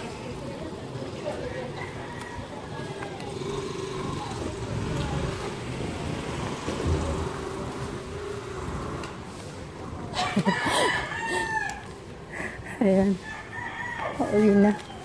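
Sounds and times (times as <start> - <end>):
rooster crowing: 10.2 - 11.9, 13.2 - 15.0.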